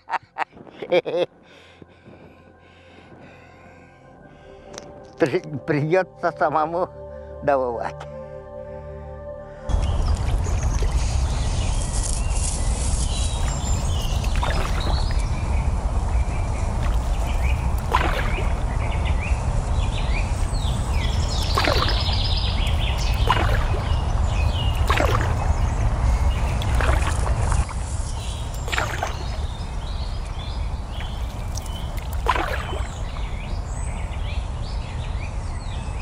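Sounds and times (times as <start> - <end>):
birds chirping: 0.0 - 36.0
wind on microphone: 0.3 - 3.3, 9.7 - 36.0
paddle splashing in water: 13.4 - 15.5, 16.7 - 19.0, 20.4 - 33.8.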